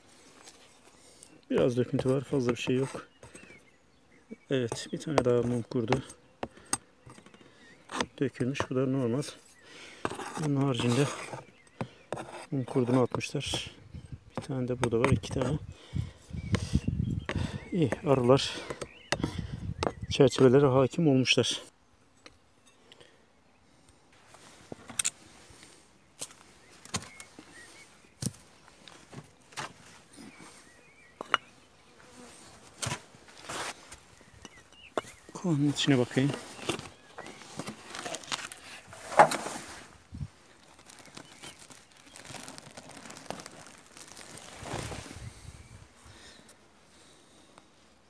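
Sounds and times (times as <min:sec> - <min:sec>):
faint bee buzzing: 0:31.7 - 0:32.8
cloth rustling and crumpling: 0:36.2 - 0:45.4.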